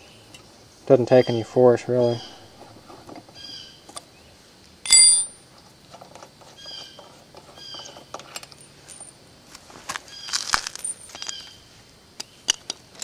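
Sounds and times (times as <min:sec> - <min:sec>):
metal clink with ring: 0:04.8 - 0:05.4.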